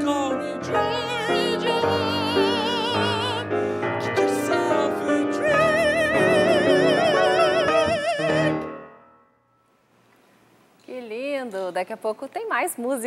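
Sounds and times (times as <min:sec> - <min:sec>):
person singing with vibrato: 0:00.0 - 0:09.2
grand piano accompaniment: 0:00.0 - 0:09.3.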